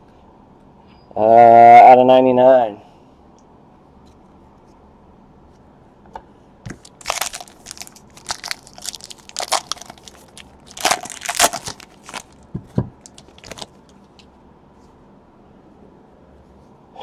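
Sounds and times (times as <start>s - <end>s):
foil wrapper crinkling: 6.7s - 14.3s.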